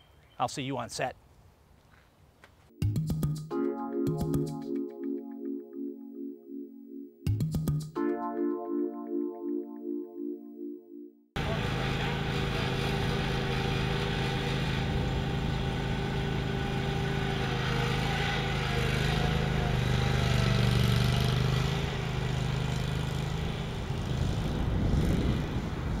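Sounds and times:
riding lawn mower engine: 0:11.4 - 0:25.6.

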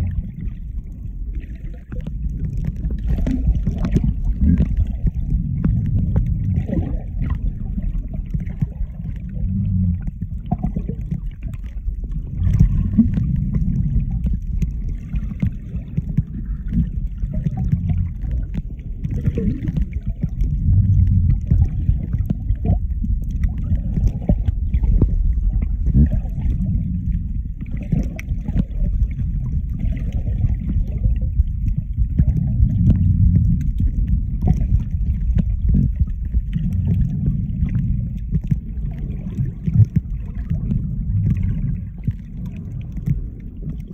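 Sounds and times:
muffled underwater rumble: 0:00.0 - 0:43.9.

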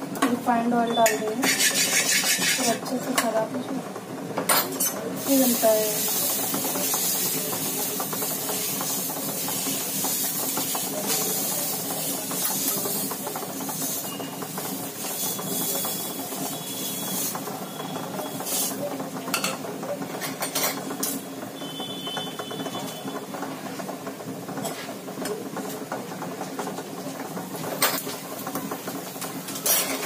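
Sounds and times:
steel ladle scraping: 0:01.4 - 0:02.8
batter sizzling on a hot griddle: 0:04.6 - 0:23.8, 0:24.6 - 0:30.0.

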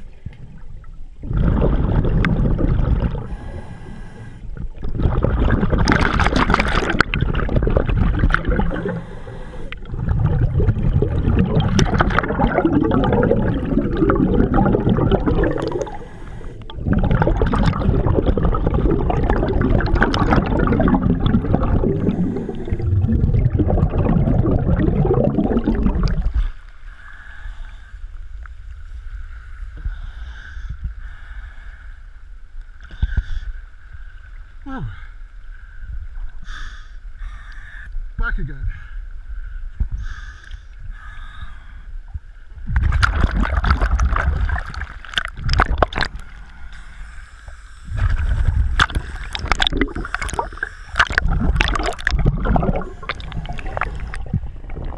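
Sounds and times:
bubbles rushing and gurgling: 0:00.0 - 0:26.6, 0:42.5 - 0:46.9, 0:47.8 - 0:54.9.

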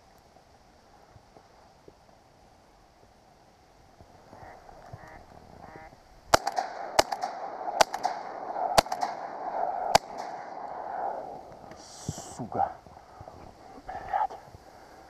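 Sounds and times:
ducks quacking: 0:04.3 - 0:06.0
shotgun shots: 0:06.3 - 0:11.2.

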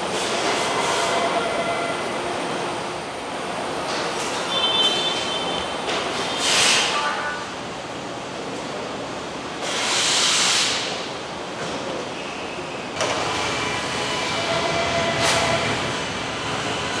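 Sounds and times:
loud machinery clatter: 0:13.0 - 0:17.0.

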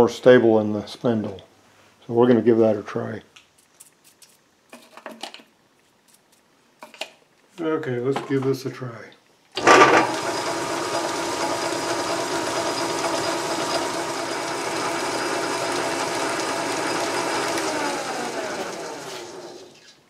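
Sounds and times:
lathe coasting down: 0:09.6 - 0:19.8
metal lathe whirring: 0:09.6 - 0:19.8.

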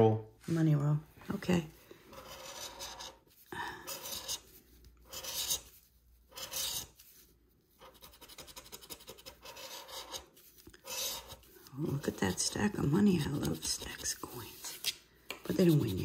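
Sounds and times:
scratching lottery ticket: 0:02.1 - 0:14.8, 0:15.5 - 0:16.0.

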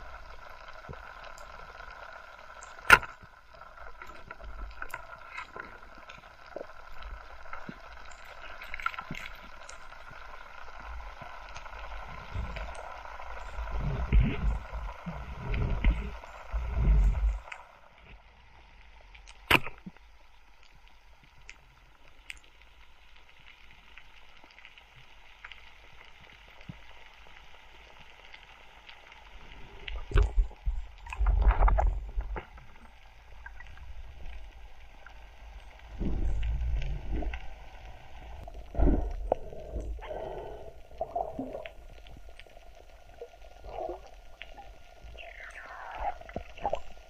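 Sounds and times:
faint steady hiss: 0:00.0 - 0:47.0
gurgling rushing water surges: 0:29.4 - 0:47.0.

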